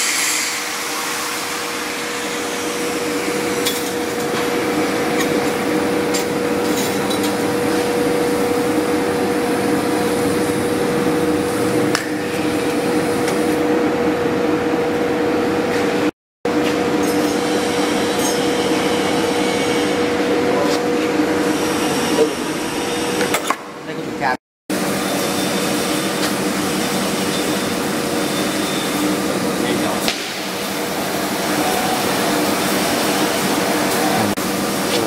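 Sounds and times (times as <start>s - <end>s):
workshop machinery hum: 0.0s - 35.0s.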